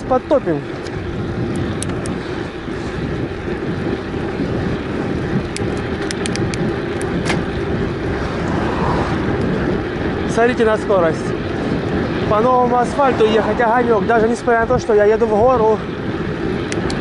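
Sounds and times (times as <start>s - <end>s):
tyres humming on road: 0.0s - 17.0s
wind over microphone: 0.0s - 17.0s
light ticks: 0.8s - 2.2s, 5.5s - 7.1s, 16.7s - 17.0s.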